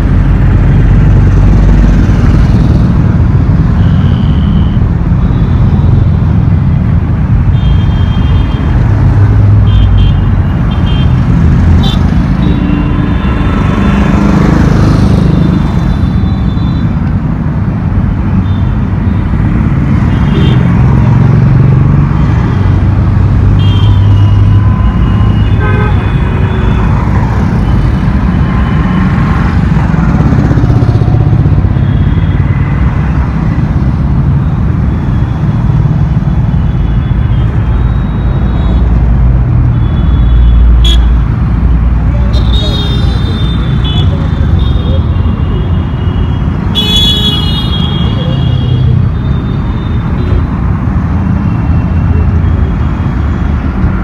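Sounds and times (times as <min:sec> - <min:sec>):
heavy road traffic passing: 0:00.0 - 0:54.0
vehicle horn toots: 0:25.3 - 0:27.0, 0:46.7 - 0:49.0.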